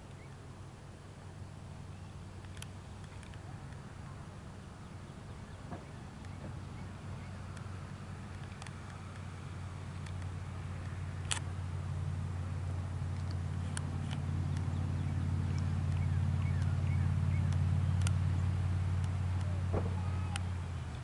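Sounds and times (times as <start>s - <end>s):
passing vehicle engine hum: 0.0s - 21.0s
sharp clicks: 2.4s - 3.8s, 10.0s - 11.5s, 15.5s - 16.8s, 17.4s - 18.2s.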